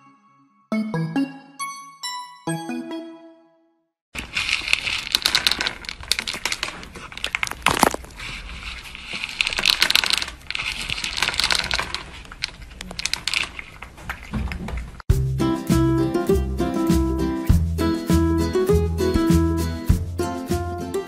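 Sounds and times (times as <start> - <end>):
cat crunching dry kibble: 4.2 - 14.6.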